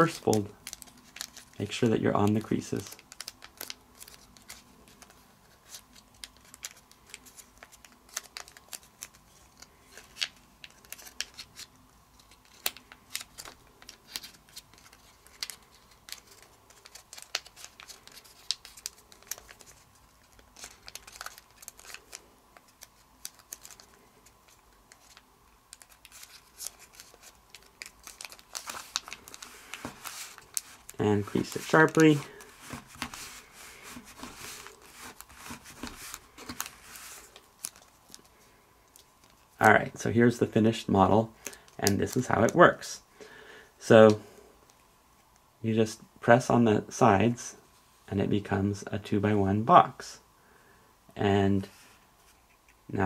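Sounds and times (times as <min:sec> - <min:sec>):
paper crinkling and crackling: 0:00.0 - 0:39.5.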